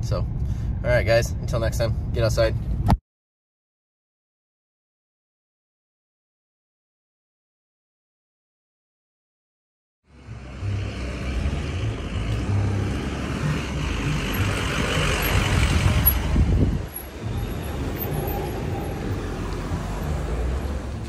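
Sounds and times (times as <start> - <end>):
car engine passing: 10.1 - 21.0
heavy truck driving past: 10.1 - 21.0.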